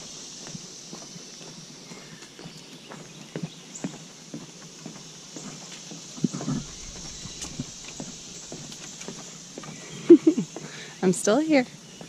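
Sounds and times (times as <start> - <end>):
footsteps on dirt trail: 0.0 - 12.0
footsteps on wooden planks: 2.2 - 10.8.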